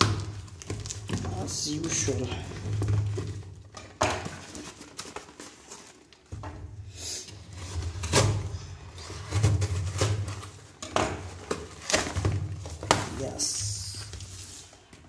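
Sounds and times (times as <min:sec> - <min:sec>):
plastic mailer rustling: 0:00.0 - 0:06.4, 0:07.4 - 0:15.0
cardboard box being handled: 0:00.6 - 0:06.1.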